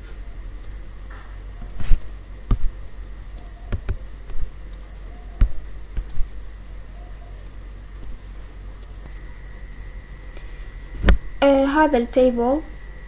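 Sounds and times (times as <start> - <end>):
steady low hum: 0.0 - 13.0
computer mouse clicks: 3.4 - 6.3.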